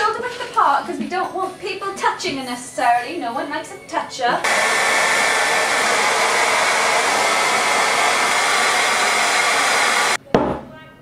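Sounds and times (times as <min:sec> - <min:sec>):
hair dryer blowing: 0:04.4 - 0:10.2.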